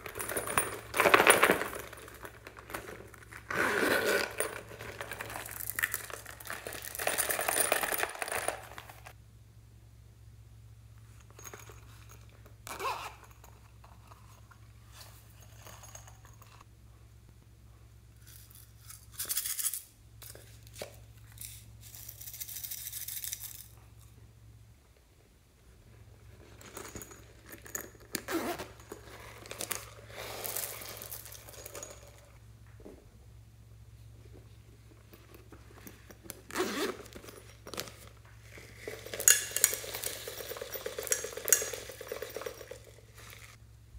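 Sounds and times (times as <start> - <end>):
low steady hum: 0.0 - 43.9.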